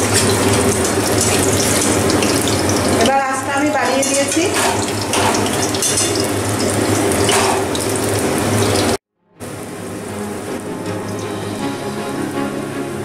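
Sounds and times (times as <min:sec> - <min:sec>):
food sizzling in hot oil: 0:00.0 - 0:09.0.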